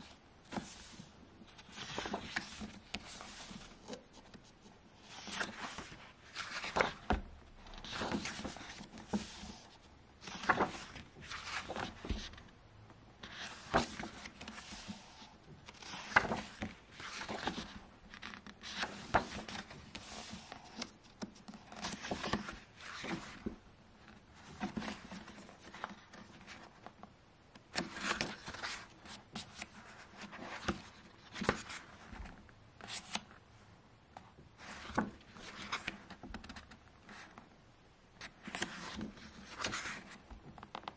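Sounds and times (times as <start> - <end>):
paper pages turning: 0.0 - 12.5, 13.2 - 27.0, 34.6 - 37.4, 38.2 - 40.9.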